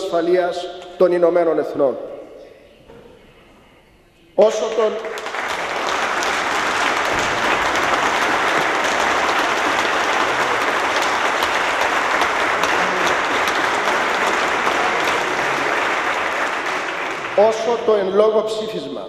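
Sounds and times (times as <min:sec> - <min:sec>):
crowd applauding: 0:04.4 - 0:18.4.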